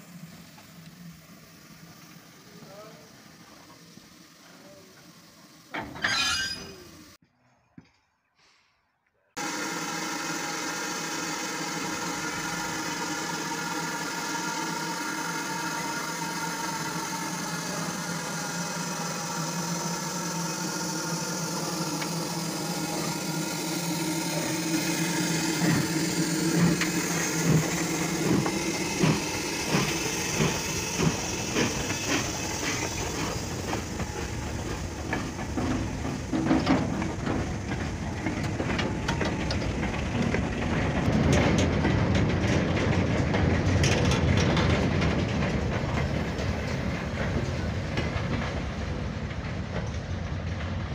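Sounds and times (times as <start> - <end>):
train hum: 0.0 - 7.8, 9.4 - 50.9
wheel clacks over rail joints: 23.9 - 50.9.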